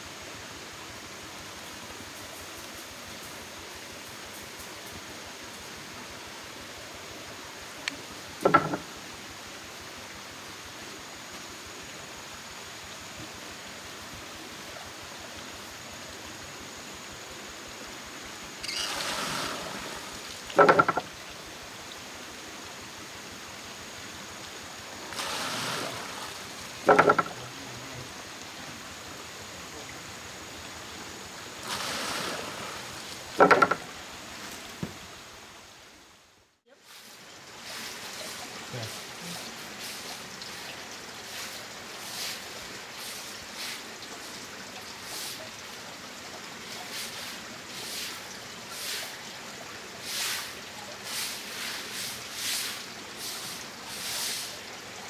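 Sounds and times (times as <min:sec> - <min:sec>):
rush of spilling water: 0:00.0 - 0:35.6, 0:36.8 - 0:55.0
running stream: 0:00.0 - 0:55.0
wooden pestle knocking: 0:08.4 - 0:08.9, 0:20.6 - 0:21.1, 0:26.9 - 0:27.4, 0:33.4 - 0:33.8.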